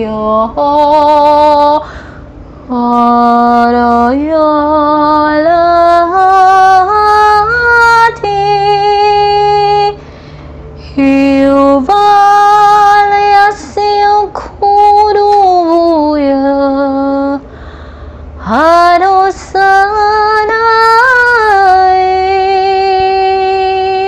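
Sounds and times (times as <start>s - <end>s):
woman singing long notes: 2.7s - 10.0s.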